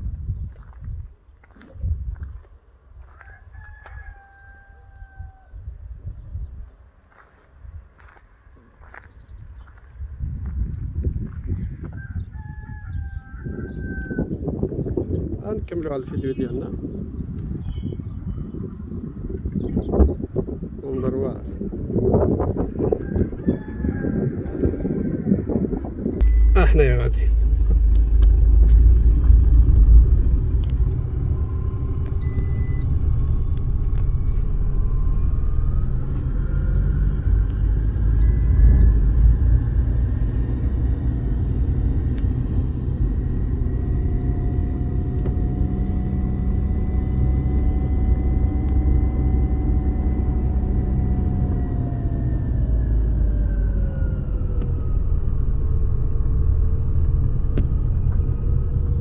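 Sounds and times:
car engine and road rumble: 0:00.0 - 0:59.0
short high beeps: 0:26.2 - 0:27.1, 0:32.2 - 0:32.8, 0:38.2 - 0:38.9, 0:44.2 - 0:44.9.

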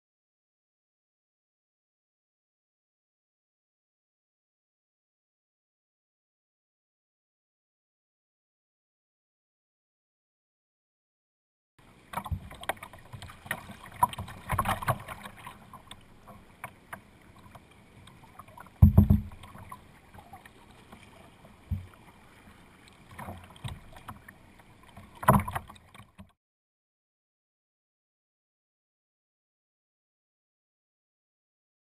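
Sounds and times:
paddle strokes splashing: 0:11.8 - 0:26.3
water slapping against hull: 0:12.0 - 0:26.3
dull thumps: 0:18.8 - 0:19.4.

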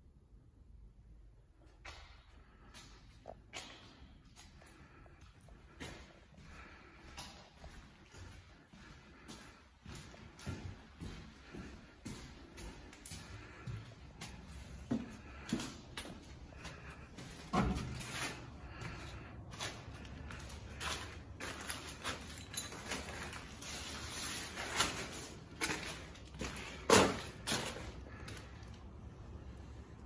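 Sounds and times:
footsteps on debris: 0:09.1 - 0:28.8.

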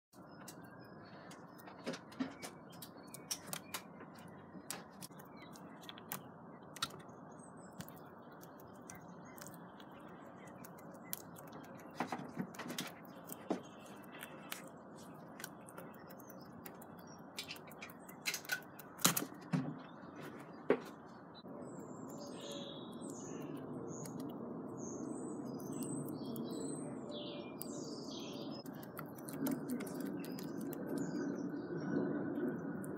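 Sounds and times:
squirrel cracking nut shells: 0:02.7 - 0:19.5, 0:22.9 - 0:24.4, 0:25.6 - 0:26.8, 0:27.6 - 0:31.5.

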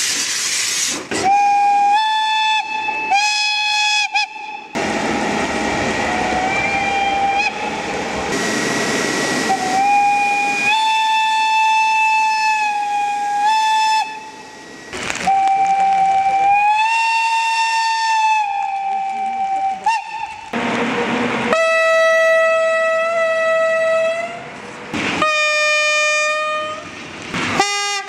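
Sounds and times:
locomotive air whistle blasts: 0:00.4 - 0:20.5.

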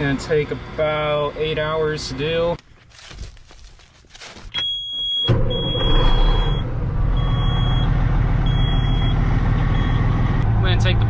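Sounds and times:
truck diesel engine running: 0:05.3 - 0:11.0.

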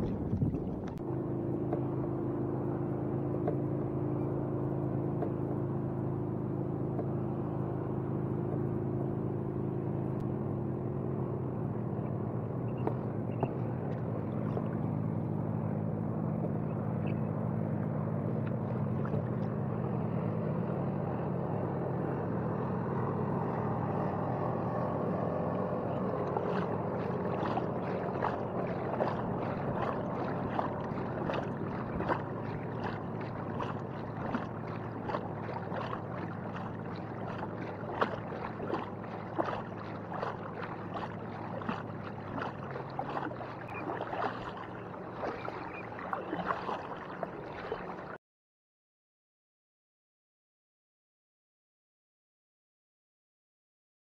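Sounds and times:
paddle splashing: 0:00.0 - 0:03.7, 0:12.7 - 0:16.5, 0:18.3 - 0:19.7, 0:25.2 - 0:48.2
water against kayak hull: 0:00.0 - 0:10.3, 0:11.6 - 0:20.3, 0:22.4 - 0:48.2
low steady hum: 0:00.0 - 0:48.2.

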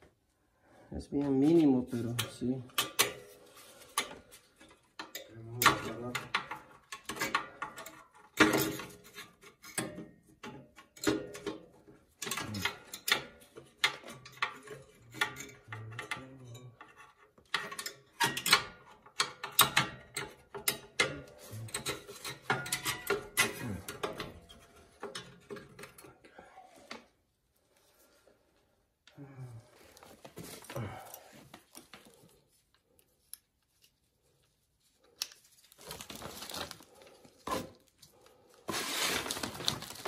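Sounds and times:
metallic clicks and knocks: 0:09.6 - 0:26.1.

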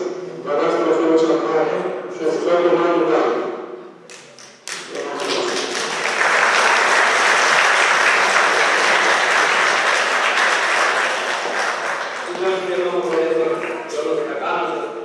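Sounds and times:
audience applauding: 0:04.1 - 0:13.9.

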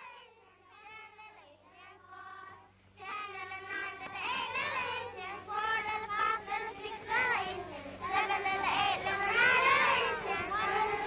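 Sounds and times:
children singing: 0:03.2 - 0:11.0.

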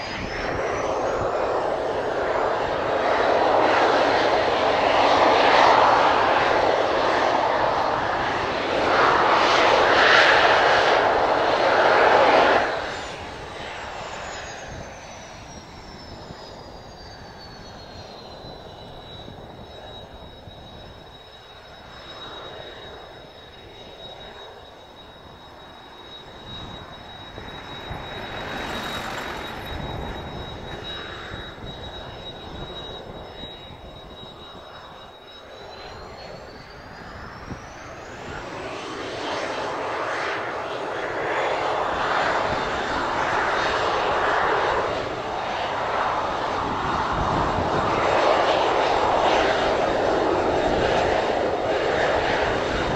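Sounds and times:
wind rumbling on microphone: 0:00.0 - 0:21.3, 0:23.2 - 0:52.9
jet engine noise: 0:00.0 - 0:52.9
jet engine whine: 0:00.0 - 0:52.9.

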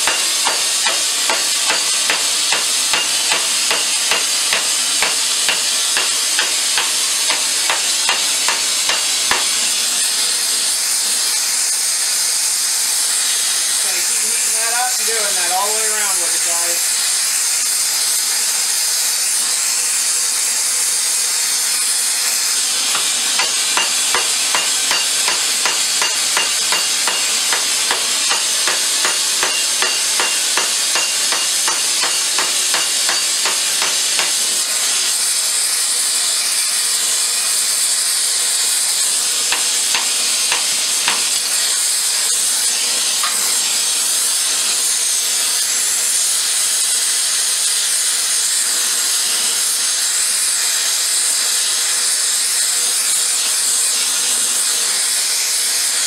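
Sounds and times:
hammer striking steel pipe: 0:00.0 - 0:09.8, 0:22.2 - 0:34.7, 0:39.4 - 0:41.9, 0:42.7 - 0:43.7
gas torch hissing: 0:00.0 - 0:56.0.

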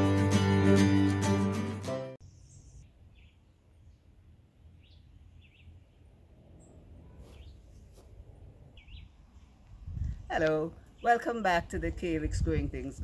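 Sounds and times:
strummed acoustic guitar: 0:00.0 - 0:02.2
bird chirps: 0:02.2 - 0:04.1, 0:04.7 - 0:06.0, 0:06.6 - 0:07.7, 0:08.8 - 0:09.2.

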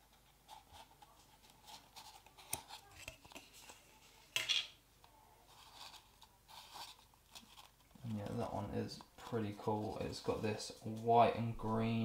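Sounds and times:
paper tissue rustling: 0:05.4 - 0:11.1.

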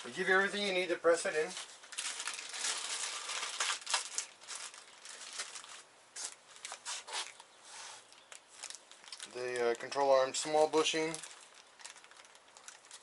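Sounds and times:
plastic packaging crinkling: 0:01.4 - 0:07.4, 0:08.0 - 0:13.0.

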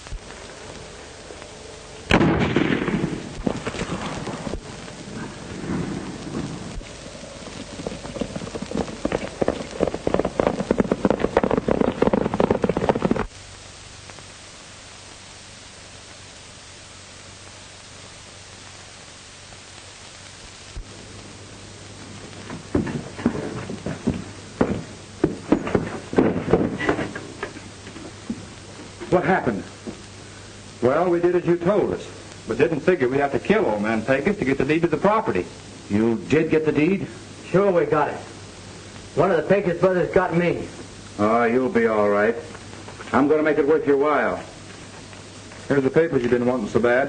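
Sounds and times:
faint hum: 0:00.0 - 0:47.0
rain: 0:00.0 - 0:47.0
soundtrack hiss: 0:00.0 - 0:47.0
rolling thunder rumble: 0:02.1 - 0:13.3
thunderclap: 0:02.1 - 0:13.3, 0:22.1 - 0:27.5.

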